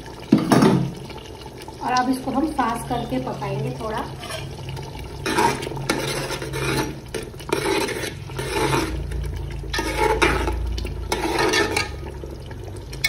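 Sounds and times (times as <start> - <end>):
spoon scraping pot while stirring: 4.1 - 12.1.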